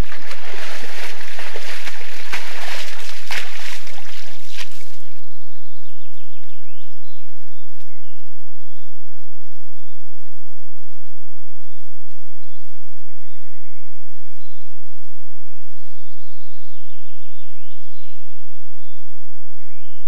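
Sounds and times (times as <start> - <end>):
water splashing and sloshing: 0.0 - 5.2.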